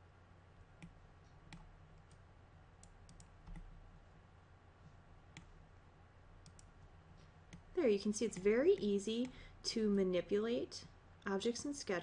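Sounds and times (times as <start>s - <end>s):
low steady hum: 0.0s - 12.0s
computer mouse clicks: 0.8s - 2.2s, 2.8s - 3.7s, 5.3s - 5.5s, 6.4s - 7.7s.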